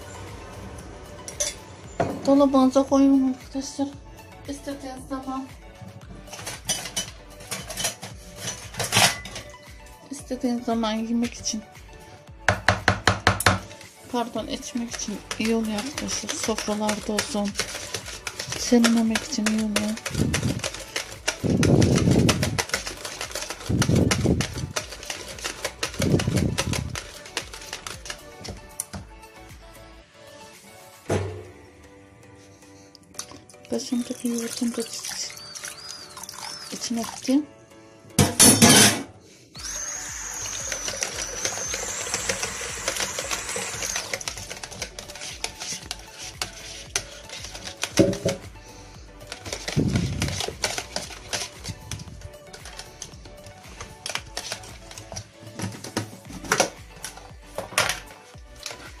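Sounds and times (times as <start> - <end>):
whisk clicking against bucket: 14.6 - 29.0, 39.7 - 48.5, 49.2 - 57.2
water pouring into bucket: 33.6 - 37.3, 39.6 - 44.6.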